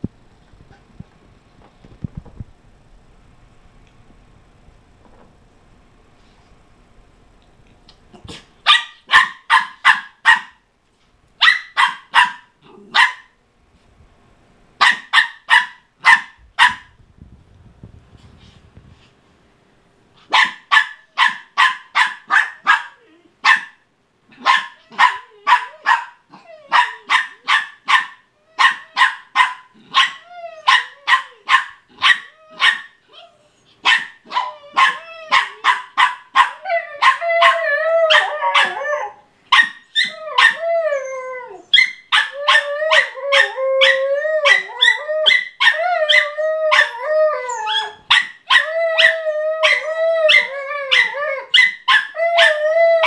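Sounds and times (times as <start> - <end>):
small dog barking: 8.3 - 10.6, 11.4 - 13.4, 14.8 - 17.0, 20.3 - 33.0, 33.8 - 38.8, 39.5 - 40.6, 41.7 - 43.9, 48.0 - 52.5
dog howl-like whine: 40.0 - 41.7, 42.4 - 48.0.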